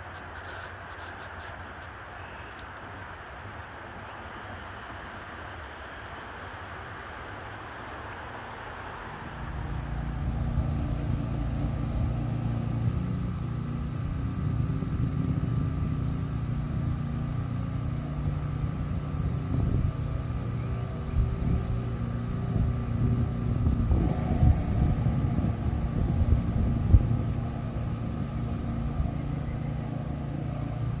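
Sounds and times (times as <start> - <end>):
motor running: 9.4 - 31.0.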